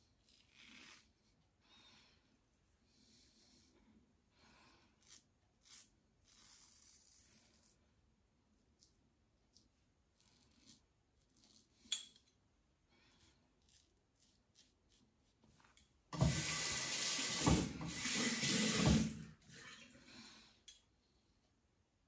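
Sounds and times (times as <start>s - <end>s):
tap water running into sink: 16.2s - 19.8s.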